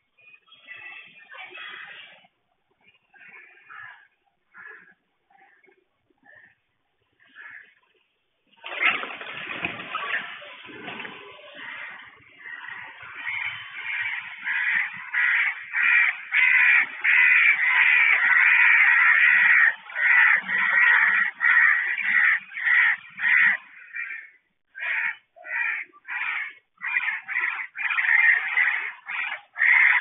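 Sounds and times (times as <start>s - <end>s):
crows cawing: 3.2s - 5.6s, 7.2s - 7.8s, 11.4s - 30.0s.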